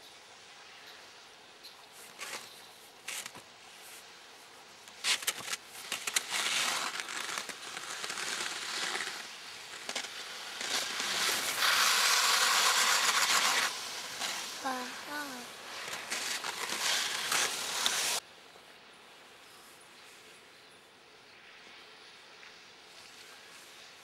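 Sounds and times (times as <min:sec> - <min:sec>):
skis scraping over snow: 0:01.9 - 0:04.1, 0:04.8 - 0:18.2.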